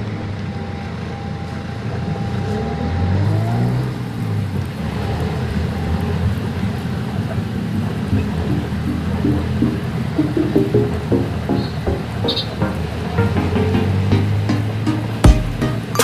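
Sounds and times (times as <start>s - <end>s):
vehicle engine rumble: 0.0s - 12.0s.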